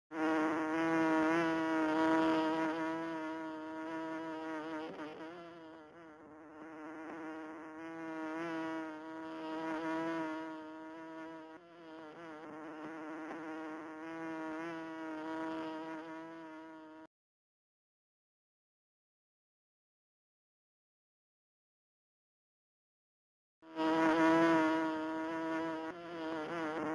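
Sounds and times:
bee buzzing in flight: 0.1 - 17.1, 23.6 - 26.9.

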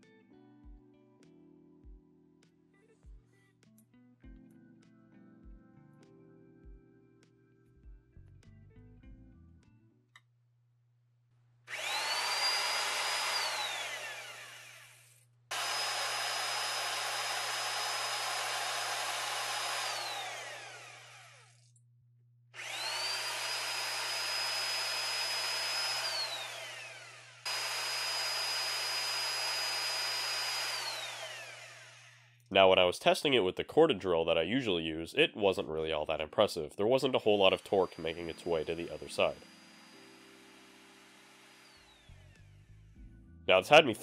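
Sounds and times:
electric drill whining: 11.7 - 21.6, 22.6 - 32.5, 37.4 - 43.0.

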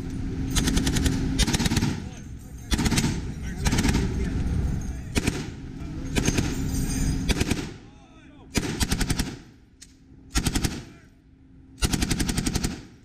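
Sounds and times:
machine gun bursts: 0.6 - 2.1, 2.7 - 4.1, 5.2 - 6.6, 7.3 - 7.7, 8.6 - 9.4, 10.4 - 10.8, 11.8 - 12.9.

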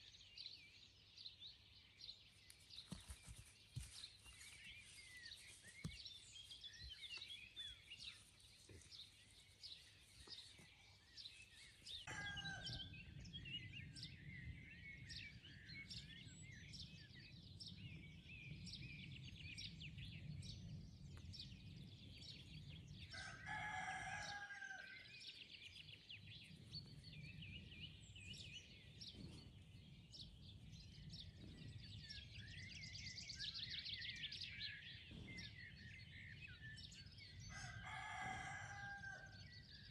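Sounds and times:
rooster crowing: 12.1 - 12.9, 23.2 - 24.9, 37.5 - 39.4.

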